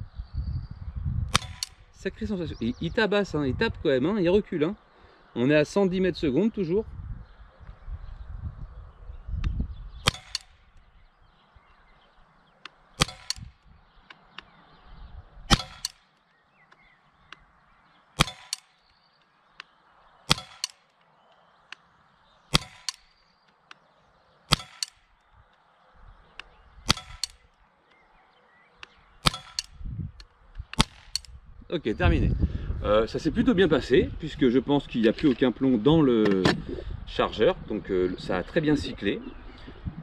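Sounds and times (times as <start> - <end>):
pellet pistol shots: 1.3 - 2.0, 10.0 - 10.8, 13.0 - 13.6, 15.5 - 16.2, 18.2 - 18.8, 20.3 - 20.9, 22.5 - 23.2, 24.5 - 25.2, 26.8 - 27.5, 29.2 - 29.8, 30.6 - 31.4.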